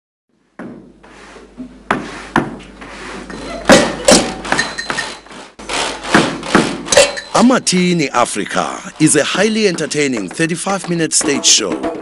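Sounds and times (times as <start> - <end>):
percussion on household items: 3.2 - 12.0.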